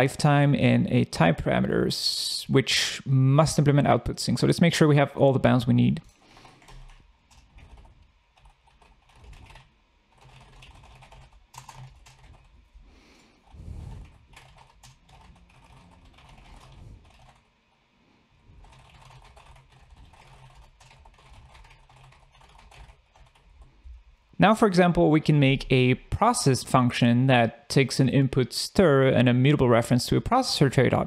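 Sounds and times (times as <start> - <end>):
keyboard typing: 6.0 - 12.6, 13.4 - 17.4, 18.6 - 23.7.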